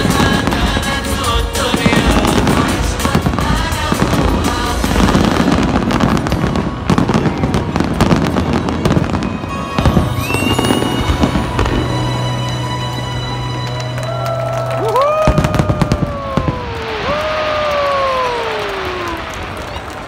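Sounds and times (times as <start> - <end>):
music playing: 0.0 - 16.5
fireworks bursting and crackling: 0.0 - 20.0
rising firework whistle: 6.9 - 19.8.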